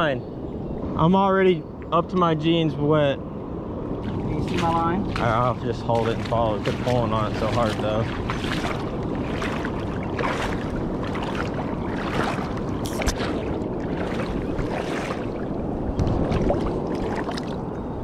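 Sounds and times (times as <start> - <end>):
legs wading through water: 3.8 - 18.0
rush of moving water: 3.8 - 18.0.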